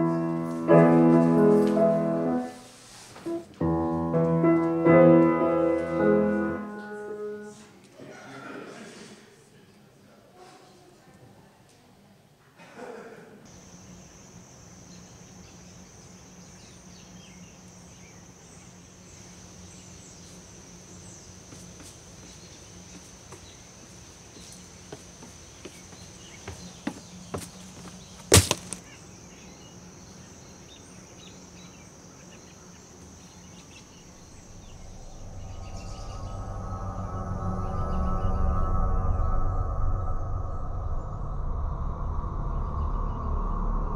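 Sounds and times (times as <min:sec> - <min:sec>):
steady high hiss: 0:13.5 - 0:43.9
footsteps on wooden boards: 0:21.5 - 0:28.9
sharp wooden crack: 0:28.2 - 0:28.9
low hum: 0:33.8 - 0:43.9.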